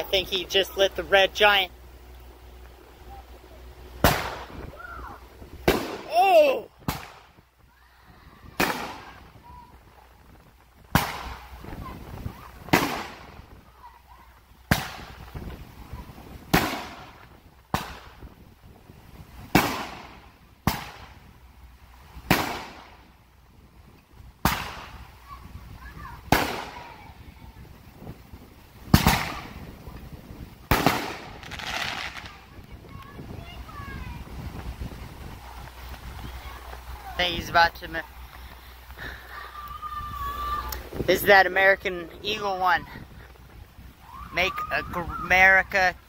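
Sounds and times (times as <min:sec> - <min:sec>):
firework shells banging: 0:04.0 - 0:04.7, 0:05.6 - 0:06.2, 0:10.9 - 0:11.9, 0:12.6 - 0:13.5, 0:28.8 - 0:33.2.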